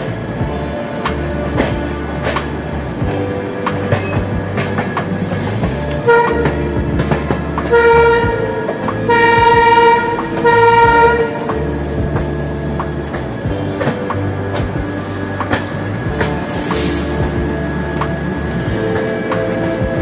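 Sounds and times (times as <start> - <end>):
moving train rumble: 0.0 - 20.0
train horn blasts: 6.1 - 6.6, 7.7 - 11.5.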